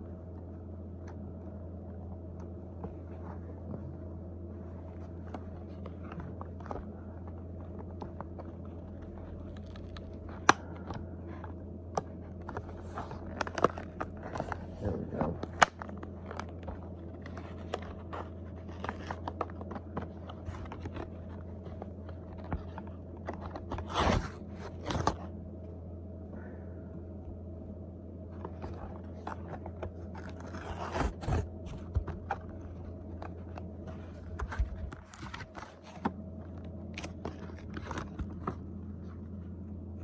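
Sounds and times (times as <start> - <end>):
plastic packaging crinkling: 5.2 - 25.3, 28.4 - 39.2.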